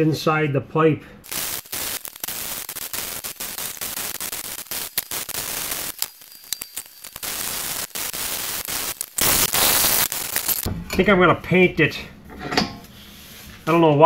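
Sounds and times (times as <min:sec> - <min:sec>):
arc welding crackling hiss: 0:01.2 - 0:10.7.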